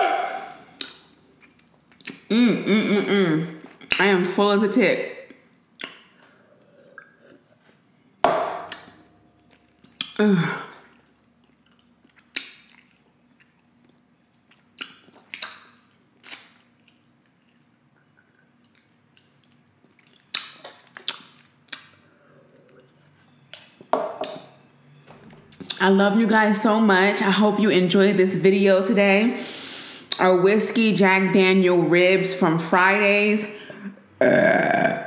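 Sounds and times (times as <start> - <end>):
lip smacks: 0.8 - 2.3, 5.8 - 6.2, 9.9 - 13.7, 14.5 - 22.9
breaths: 29.4 - 30.1, 33.5 - 34.0.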